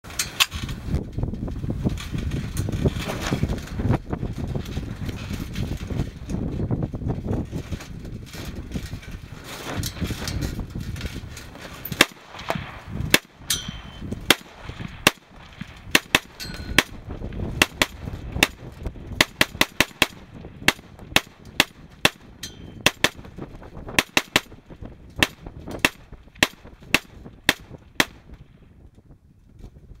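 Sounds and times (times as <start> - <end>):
wind rumble on microphone: 0.1 - 30.0
rifle shots: 11.9 - 23.3, 24.0 - 24.6, 25.2 - 28.3.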